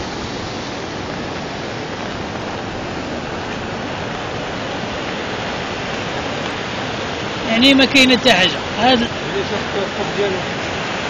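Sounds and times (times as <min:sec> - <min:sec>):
floodwater rushing: 0:00.0 - 0:11.0.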